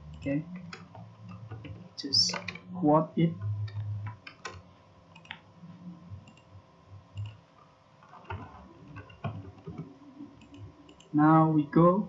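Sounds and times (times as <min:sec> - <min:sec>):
keyboard typing clicks: 0:03.4 - 0:05.4, 0:07.1 - 0:07.4, 0:08.2 - 0:11.1.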